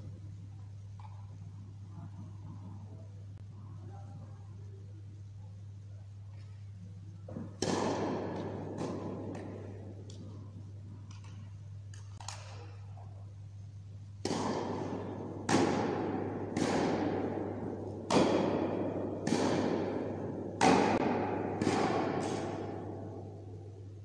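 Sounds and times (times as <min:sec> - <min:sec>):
sharp echoing bangs: 0:07.6 - 0:10.3, 0:14.2 - 0:24.0.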